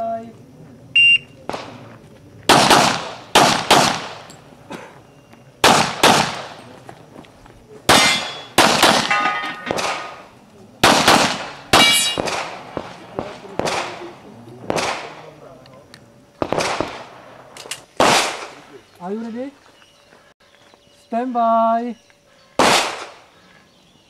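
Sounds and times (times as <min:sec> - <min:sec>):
handgun shots: 0:02.5 - 0:04.3, 0:05.6 - 0:06.6, 0:07.9 - 0:10.2, 0:10.8 - 0:14.0
steel targets ringing: 0:07.9 - 0:10.3, 0:11.8 - 0:12.3.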